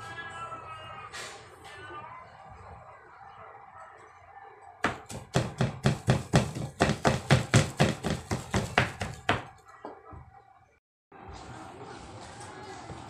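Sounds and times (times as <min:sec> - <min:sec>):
knife chopping on plastic board: 0:04.8 - 0:09.5.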